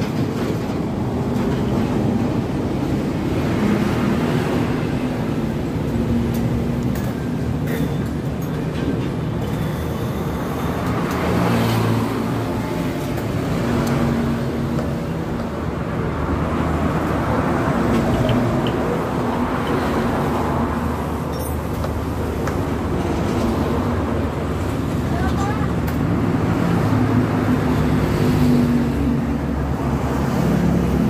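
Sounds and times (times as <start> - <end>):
motor traffic rumble: 0.0 - 31.0.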